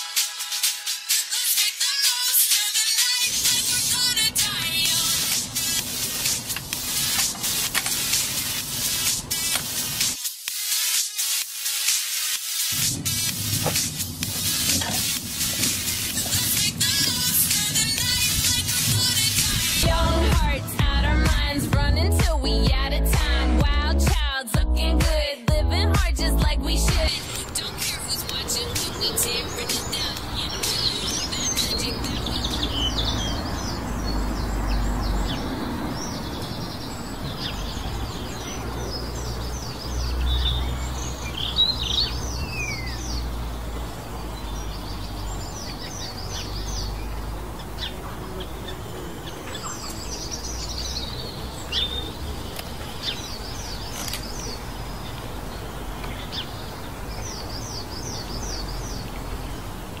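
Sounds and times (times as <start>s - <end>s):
songbirds chirping and singing: 1.4s - 10.1s, 13.6s - 24.2s, 24.8s - 60.0s
low outdoor rumble: 13.4s - 24.1s.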